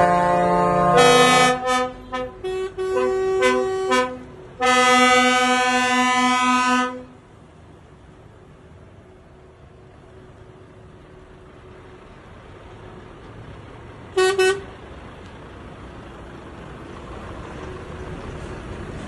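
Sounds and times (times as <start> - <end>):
truck horns honking: 0.0 - 7.2, 14.1 - 14.8
passing trucks rumbling: 0.0 - 19.0.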